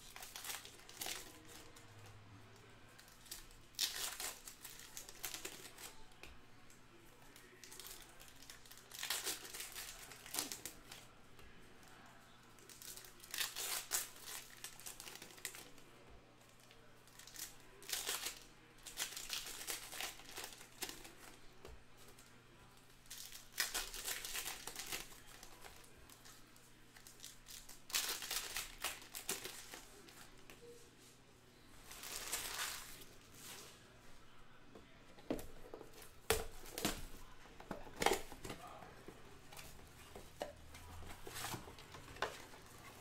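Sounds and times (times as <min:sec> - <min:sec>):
foil wrappers crinkling and tearing: 0:00.0 - 0:02.0, 0:02.9 - 0:06.2, 0:07.4 - 0:11.1, 0:12.6 - 0:15.9, 0:16.6 - 0:21.5, 0:23.0 - 0:30.4, 0:31.8 - 0:33.7.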